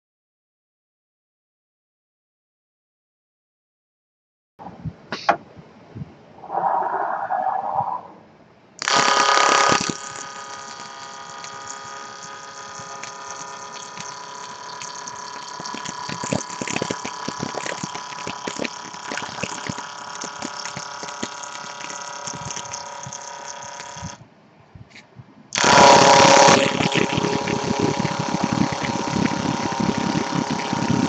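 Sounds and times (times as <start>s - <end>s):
wood lathe whine: 8.8s - 24.2s, 25.6s - 31.0s.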